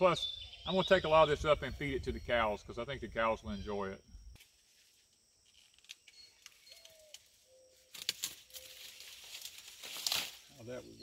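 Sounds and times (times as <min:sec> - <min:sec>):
faint bird chirps: 0:00.0 - 0:04.8, 0:05.5 - 0:09.4
corn stalks and leaves rustling: 0:04.4 - 0:11.0.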